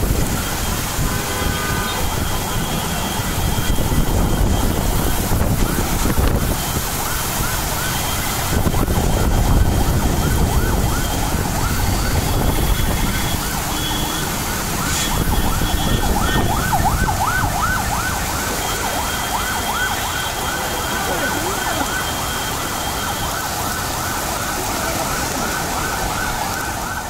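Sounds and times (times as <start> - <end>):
wind buffeting microphone: 0.0 - 13.7, 14.3 - 18.3
distant warbling siren: 0.0 - 27.0
heavy rain: 0.0 - 27.0.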